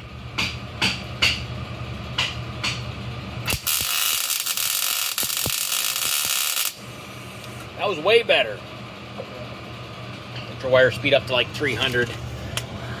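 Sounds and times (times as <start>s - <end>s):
welder crackling hiss: 3.5s - 6.8s.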